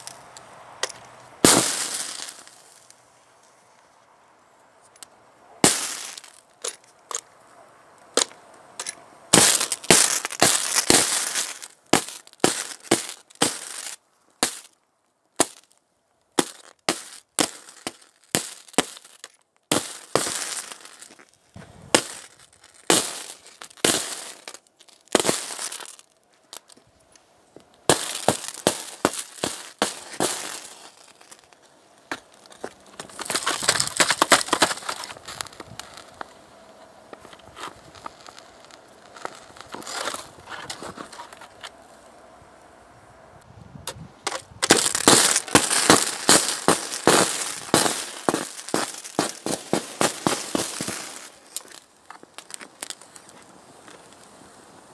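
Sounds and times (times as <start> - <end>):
electrical arcing cracks: 44.3 - 51.8.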